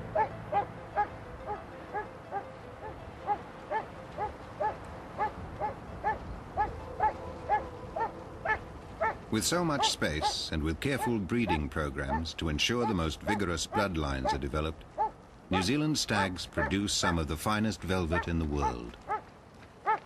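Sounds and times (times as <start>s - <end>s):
dog barking: 0.2s - 2.4s, 3.3s - 9.2s, 15.0s - 15.7s.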